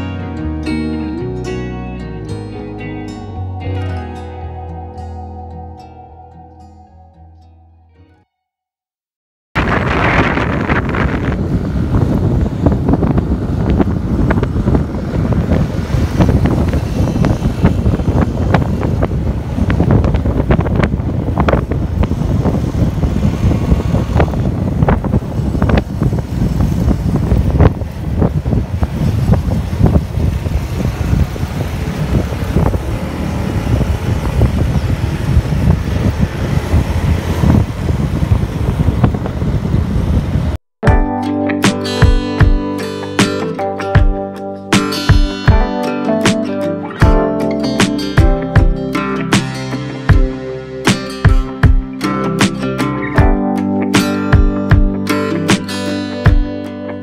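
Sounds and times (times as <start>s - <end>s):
road noise: 0.0s - 6.3s, 9.6s - 40.6s, 41.4s - 57.0s
wind buffeting microphone: 9.6s - 40.6s
motorcycle engine running: 50.1s - 50.4s.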